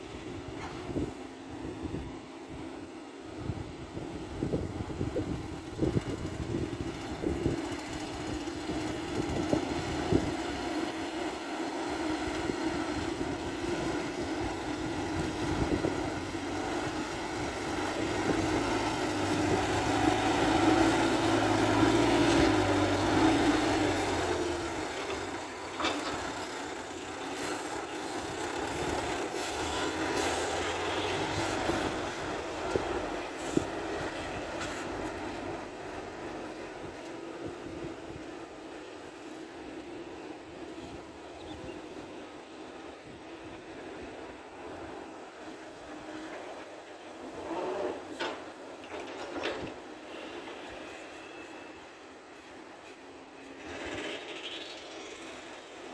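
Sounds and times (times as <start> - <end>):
dump truck diesel engine: 3.8 - 41.0.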